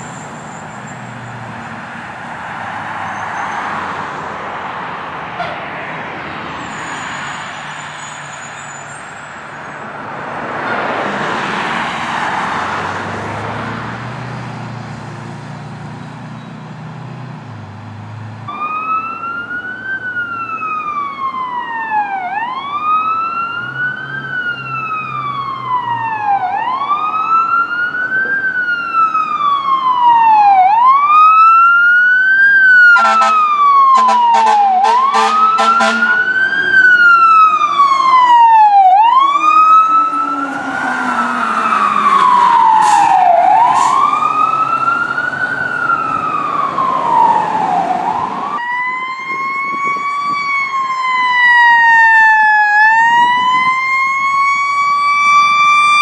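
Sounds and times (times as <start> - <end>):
fire truck siren wailing: 0.0 - 5.9, 18.5 - 56.0
dense siren sound: 18.5 - 56.0
short horn blasts: 33.0 - 33.4, 34.0 - 36.2.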